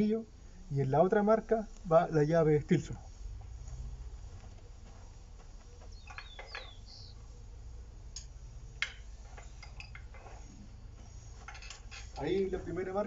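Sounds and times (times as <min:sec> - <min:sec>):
metallic clicks and clinks: 0:08.1 - 0:10.4.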